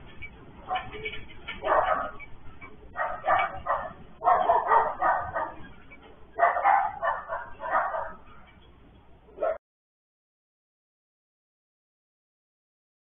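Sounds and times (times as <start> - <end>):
dog barking: 0.7 - 1.0, 1.6 - 2.3, 2.9 - 5.7, 6.4 - 8.3, 9.4 - 9.6.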